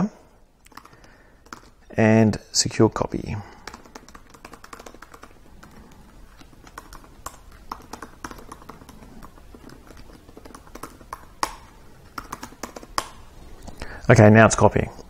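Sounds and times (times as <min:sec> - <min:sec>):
laptop keyboard typing: 0:00.6 - 0:01.9, 0:03.4 - 0:13.3.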